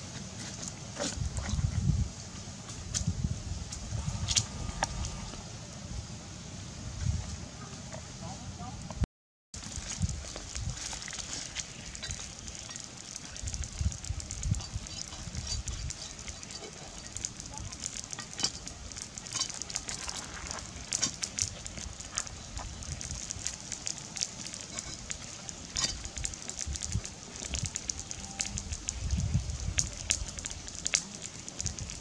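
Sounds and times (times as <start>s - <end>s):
steady high hiss: 0.0s - 9.0s, 9.6s - 32.0s
low rumbles: 2.8s - 9.0s.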